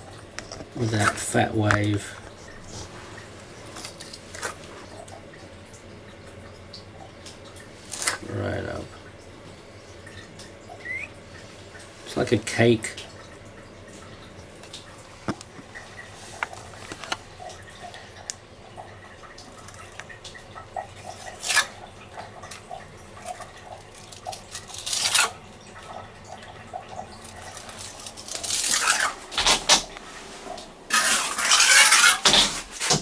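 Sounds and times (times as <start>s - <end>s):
trowel scraping wet compound: 28.5s - 29.2s, 30.9s - 33.0s.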